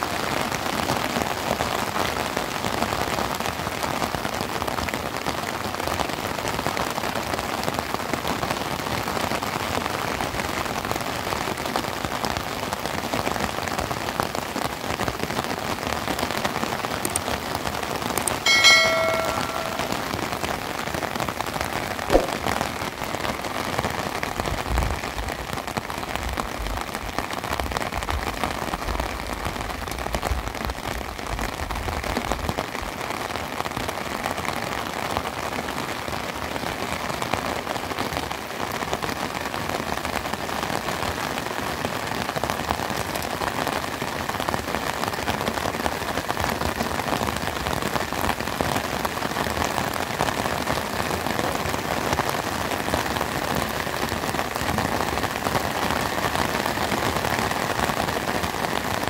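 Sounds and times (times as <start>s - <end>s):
steady rain: 0.0s - 59.0s
brief multi-pitched ringing: 18.4s - 20.4s
short click: 22.1s - 22.4s.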